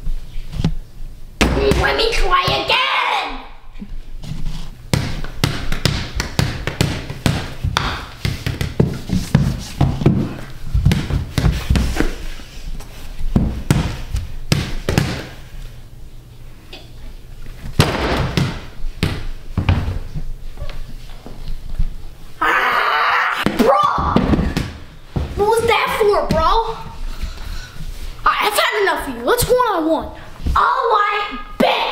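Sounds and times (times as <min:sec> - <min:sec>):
basketball bouncing on wooden floor: 0:04.9 - 0:12.0, 0:13.3 - 0:15.4, 0:17.8 - 0:20.2, 0:23.5 - 0:25.6.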